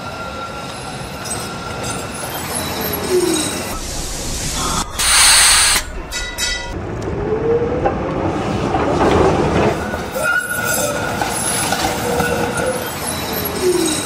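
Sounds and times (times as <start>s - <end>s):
steel wheel squeal: 0.0s - 6.8s, 9.8s - 14.0s
tram wheels rumbling on rails: 0.0s - 14.0s.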